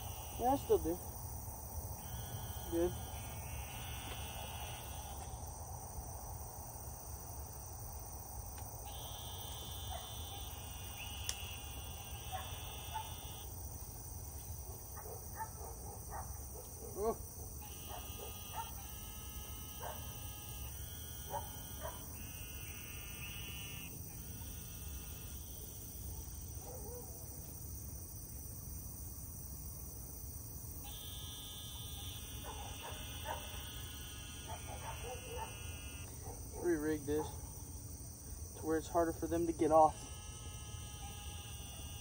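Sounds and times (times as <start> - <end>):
insect calls: 0.0 - 42.0
insects droning: 0.0 - 42.0.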